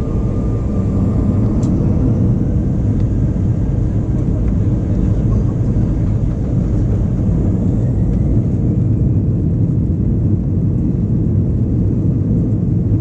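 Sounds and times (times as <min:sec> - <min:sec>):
airplane engines rumbling in cabin: 0:00.0 - 0:13.0.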